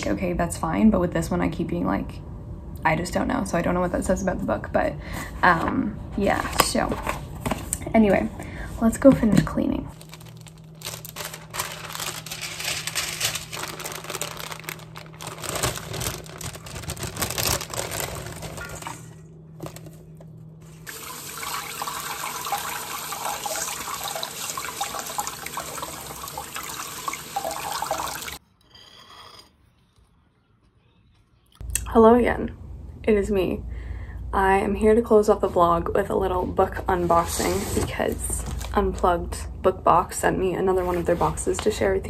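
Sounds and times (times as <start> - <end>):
kale handled in metal colander: 10.2 - 20.0
tap water running into sink: 20.8 - 28.4.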